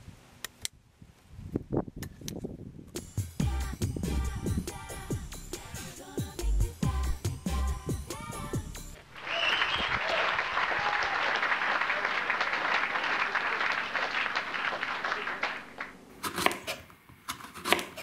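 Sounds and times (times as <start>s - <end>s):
applause: 9.1s - 16.0s
knife cutting onto cutting board: 16.2s - 18.0s.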